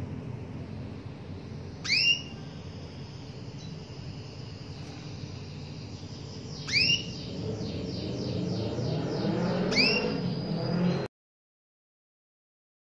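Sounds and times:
low background rumble: 0.0s - 10.8s
canary calling: 1.8s - 11.0s.

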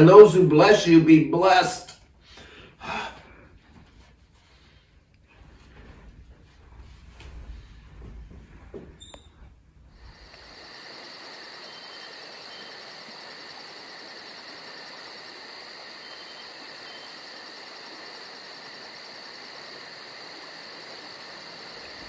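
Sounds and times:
insects trilling: 10.0s - 22.0s
rapid high-pitched insect pulsing: 10.0s - 22.0s.

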